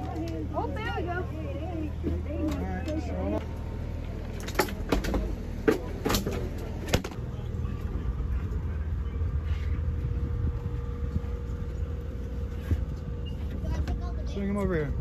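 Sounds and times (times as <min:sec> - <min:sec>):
boat engine humming: 0:00.0 - 0:15.0
faint whine: 0:06.5 - 0:15.0.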